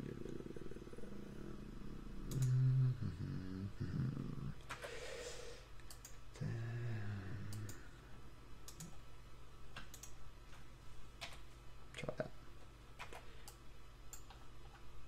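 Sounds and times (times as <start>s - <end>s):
computer mouse and keyboard clicks: 2.2s - 2.6s, 8.6s - 9.0s, 9.7s - 10.2s, 13.0s - 14.9s.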